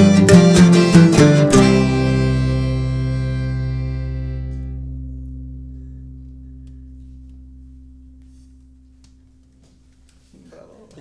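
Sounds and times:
string and accordion ensemble chord: 0.0s - 4.8s.

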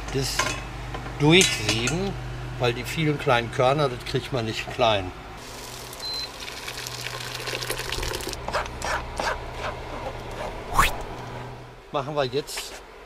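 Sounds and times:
rising whoosh: 10.6s - 11.2s.

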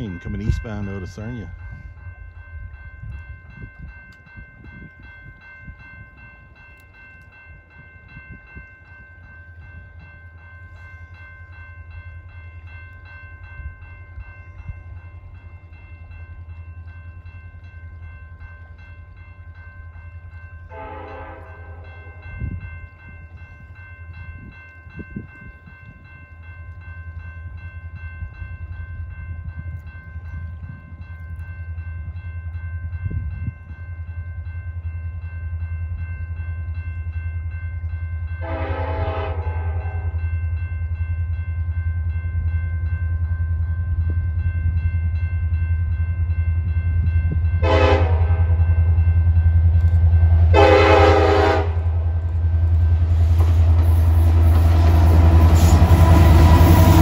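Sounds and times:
diesel locomotive rumbling: 0.0s - 57.0s
locomotive horn blast: 20.7s - 22.2s, 38.4s - 40.2s, 47.6s - 48.6s, 50.5s - 52.1s.

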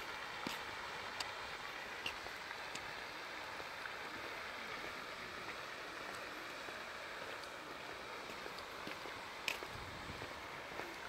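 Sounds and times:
fountain spray hissing: 0.0s - 11.0s.

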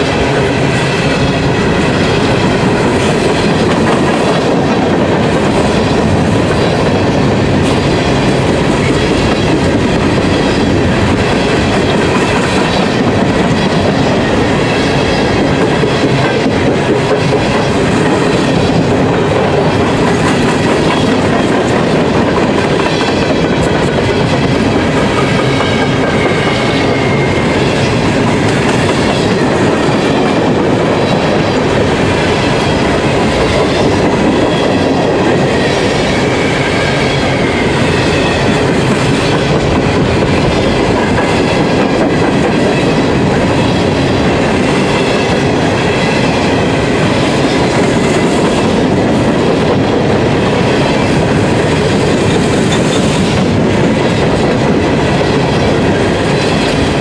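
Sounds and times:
train wheels rumbling on rail: 0.0s - 57.0s.

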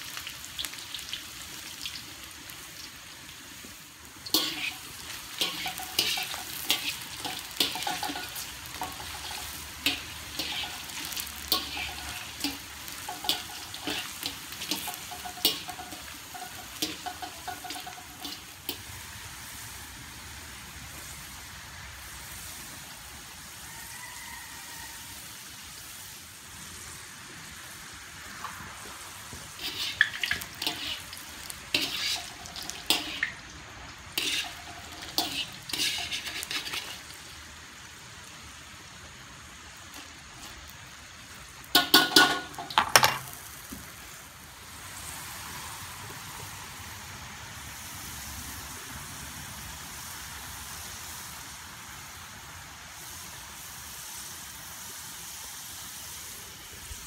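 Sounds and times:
fries sizzling in oil: 0.0s - 57.0s
wire strainer scraping a wok: 4.2s - 19.0s, 29.3s - 37.4s, 39.9s - 40.7s, 41.7s - 43.4s.

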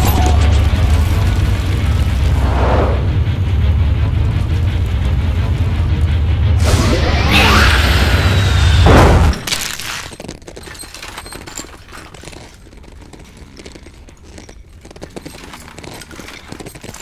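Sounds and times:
deep rumbling hit: 0.3s - 9.4s.

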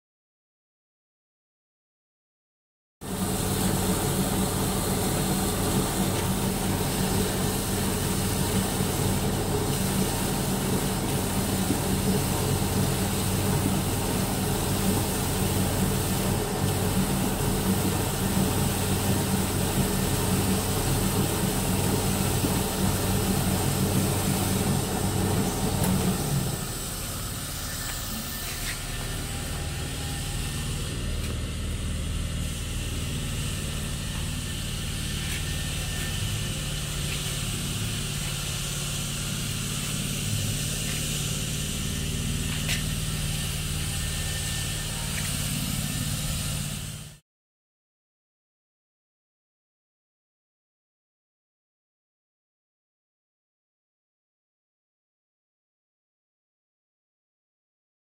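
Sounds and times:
paper cutting machine running: 3.1s - 47.1s.

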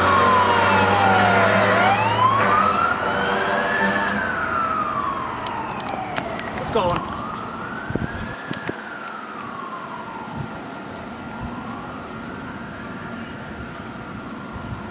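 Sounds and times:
fire engine siren wailing: 0.0s - 14.9s.

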